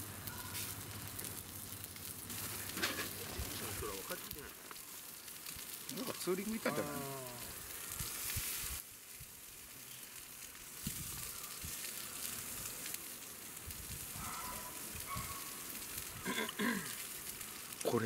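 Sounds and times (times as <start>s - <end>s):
steaks sizzling on a grill: 0.0s - 18.0s.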